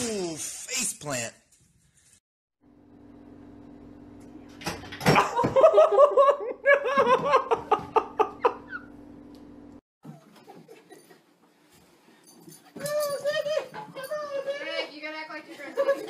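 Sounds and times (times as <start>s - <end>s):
person laughing hard: 5.2s - 8.8s.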